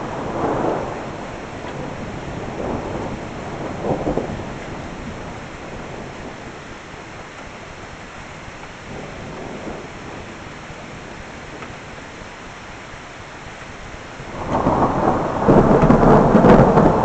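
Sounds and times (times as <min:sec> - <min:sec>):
thunder rumbling: 0:00.0 - 0:06.8, 0:08.8 - 0:12.2, 0:14.1 - 0:17.0
rain hissing: 0:00.0 - 0:17.0.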